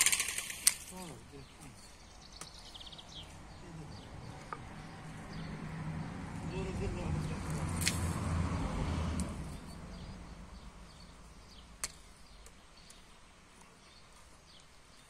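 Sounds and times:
sharp click: 0.0s - 0.9s.

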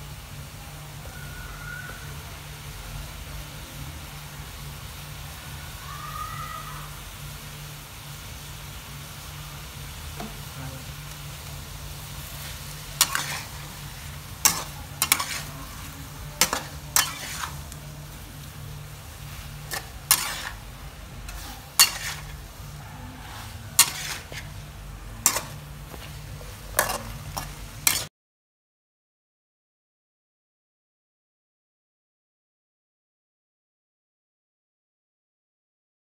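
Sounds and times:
low sizzle: 0.0s - 28.1s
metal spatula clanking on wok: 13.0s - 13.6s, 14.4s - 18.2s, 19.4s - 20.6s, 21.3s - 28.1s.

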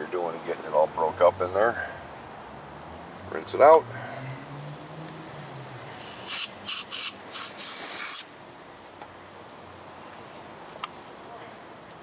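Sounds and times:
aerosol spray hissing bursts: 6.0s - 8.3s.

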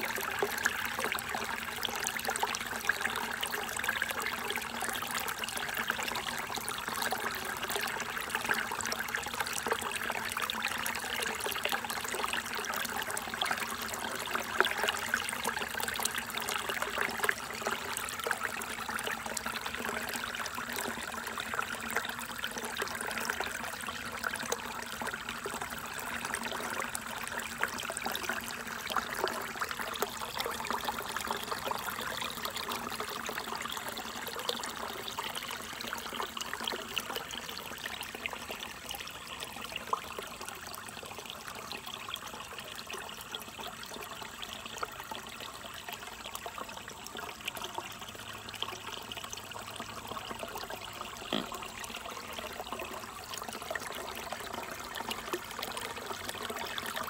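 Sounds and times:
stream splashing over rocks: 50.0s - 57.0s.

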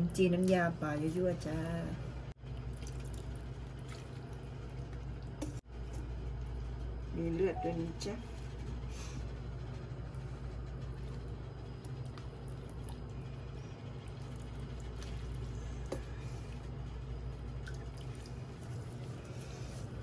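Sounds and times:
steady low hum: 0.0s - 20.0s
broth pouring and dripping: 2.4s - 6.0s, 10.7s - 20.0s.

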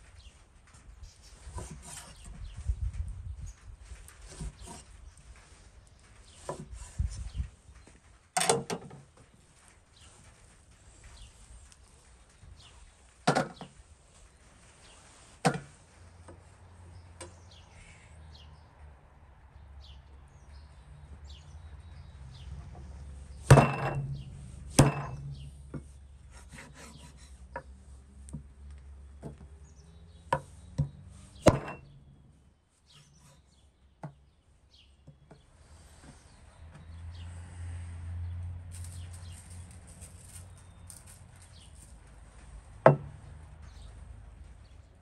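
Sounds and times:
light taps and scrapes: 0.0s - 17.6s, 21.9s - 32.0s, 32.8s - 37.3s, 38.6s - 44.8s
cleaver chopping meat on wood: 23.5s - 24.2s, 24.8s - 25.4s, 30.8s - 31.9s.

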